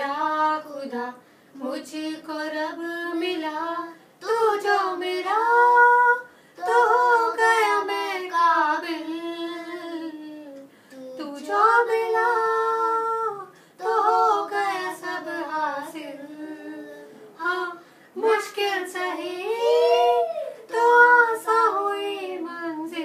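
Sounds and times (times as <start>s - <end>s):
woman and boy singing: 0.0s - 23.0s.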